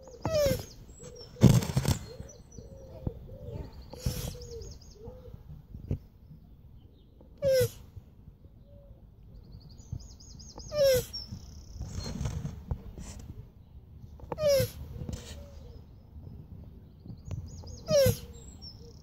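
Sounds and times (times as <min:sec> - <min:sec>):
tortoise squeaky calls: 0:00.0 - 0:05.3, 0:07.4 - 0:07.9, 0:10.4 - 0:12.5, 0:14.2 - 0:15.9, 0:17.5 - 0:19.0.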